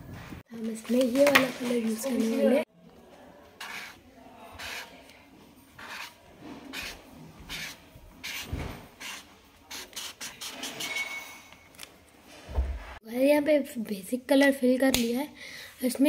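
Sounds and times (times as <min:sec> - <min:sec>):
marker scraping on paper: 0:00.9 - 0:02.6, 0:03.6 - 0:11.0.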